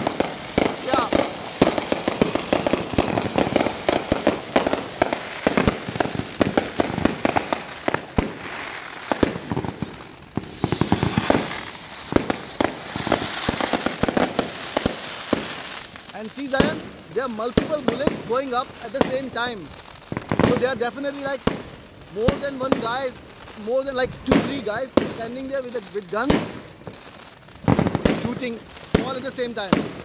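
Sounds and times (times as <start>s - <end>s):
fireworks whistles falling in pitch: 0.0s - 16.8s
fireworks bangs and crackles: 0.0s - 30.0s.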